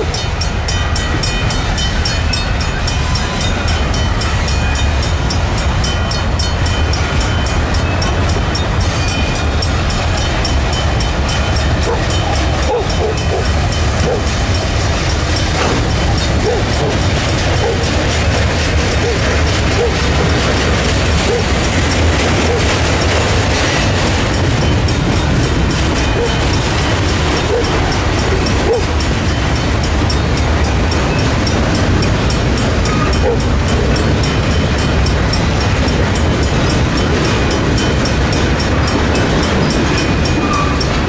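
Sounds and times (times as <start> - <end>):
steel wheels rumbling on rail: 0.0 - 41.0.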